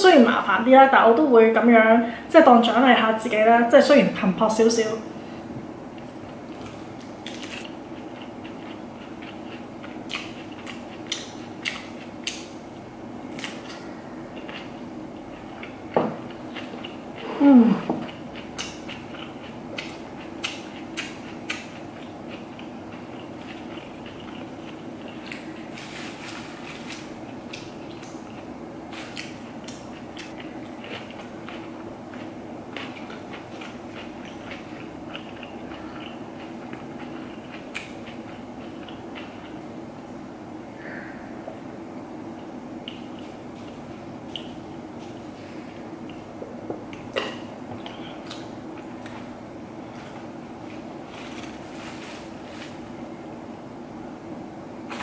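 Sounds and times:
faint background hum: 0.0 - 55.0
lettuce crunching being chewed: 6.0 - 39.7, 42.8 - 46.3, 46.9 - 53.1
lettuce leaves crackling: 6.5 - 7.7, 50.6 - 53.0.

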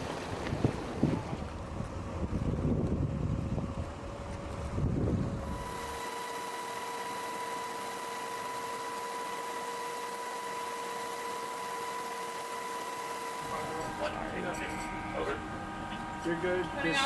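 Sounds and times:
low wind and wave rumble: 0.0 - 6.0
steady electronic hiss: 5.4 - 9.8
faint high whine: 5.4 - 17.0
thin steady tones: 5.4 - 17.0.

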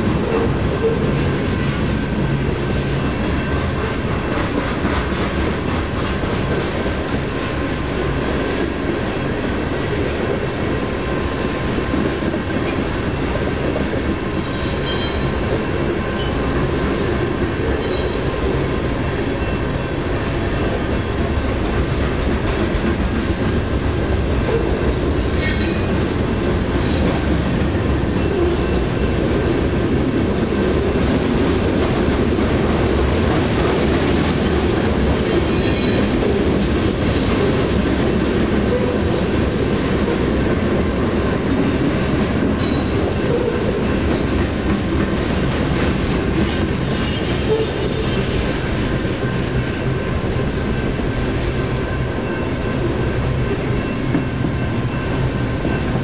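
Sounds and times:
freight train wheels rumbling: 0.0 - 56.0
high wheel squeals: 46.7 - 48.3.

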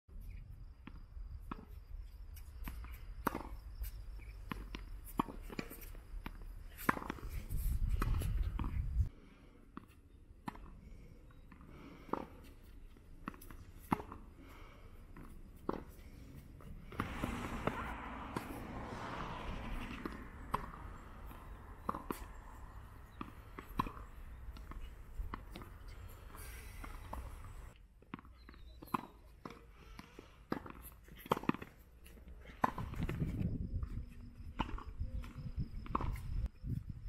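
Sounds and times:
tennis balls struck by rackets: 2.5 - 7.3, 9.7 - 10.8, 11.5 - 33.4
low rumble: 16.8 - 23.0
balls bouncing on hard court: 16.8 - 27.5.

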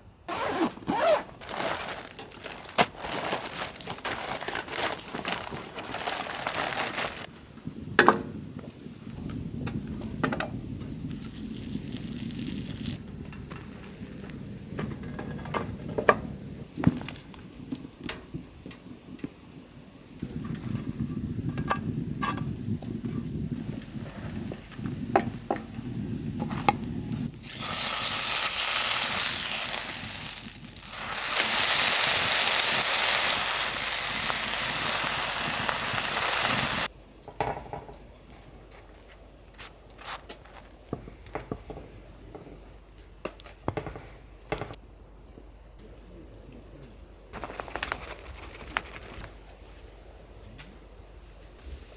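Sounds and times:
bacon sizzling in a frying pan: 11.1 - 13.0, 27.4 - 36.9.

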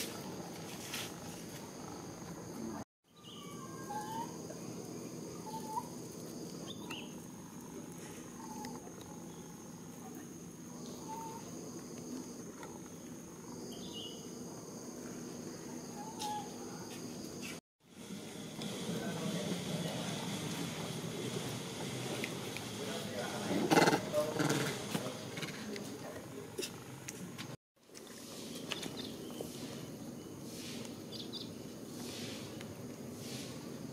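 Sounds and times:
insect drone: 0.0 - 27.4, 28.2 - 33.9.

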